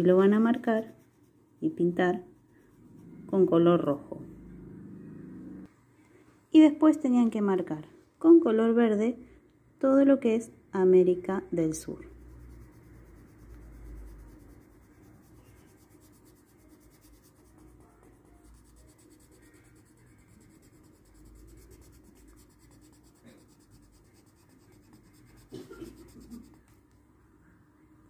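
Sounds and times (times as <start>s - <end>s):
pencil scratching on paper: 0.0s - 3.4s, 12.0s - 26.8s.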